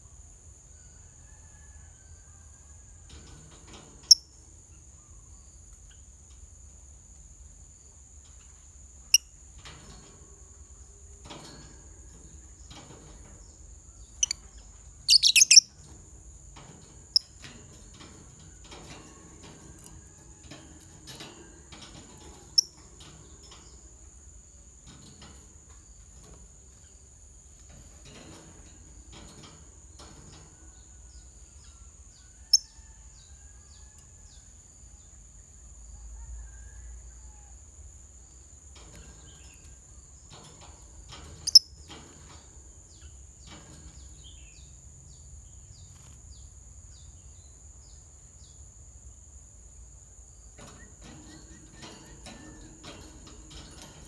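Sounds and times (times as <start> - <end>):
lovebirds chirping shrilly: 15.1 - 15.7.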